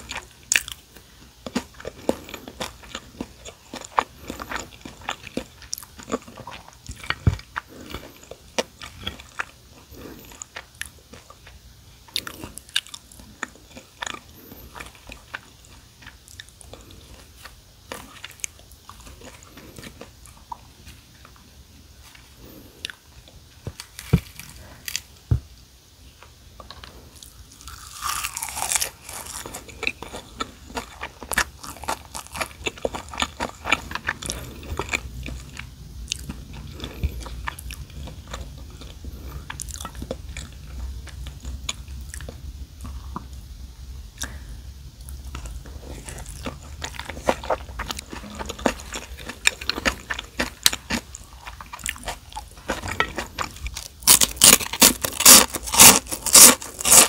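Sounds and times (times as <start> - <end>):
close-miked chewing: 0.0 - 25.0, 26.6 - 43.4, 44.2 - 57.0
crisp seaweed crunching: 27.6 - 35.0, 46.2 - 57.0.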